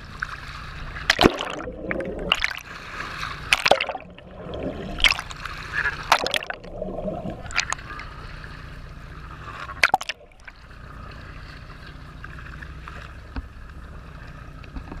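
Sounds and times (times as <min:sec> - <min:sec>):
sea water sloshing and lapping: 0:00.0 - 0:15.0
steady low rumble: 0:00.0 - 0:15.0
sharp loud water splash: 0:01.0 - 0:07.8, 0:09.8 - 0:10.5.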